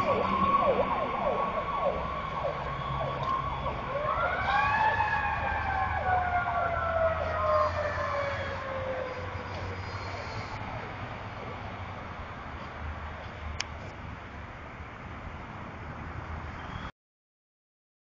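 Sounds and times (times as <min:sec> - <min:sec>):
siren rising and falling: 0:00.0 - 0:09.9
electronic siren yelping: 0:00.0 - 0:10.4
steady siren tone: 0:00.0 - 0:11.8.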